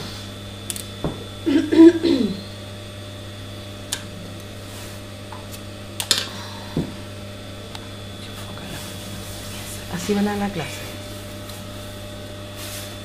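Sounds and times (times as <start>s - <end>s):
low electrical hum: 0.0s - 13.0s
person speaking: 9.6s - 11.0s.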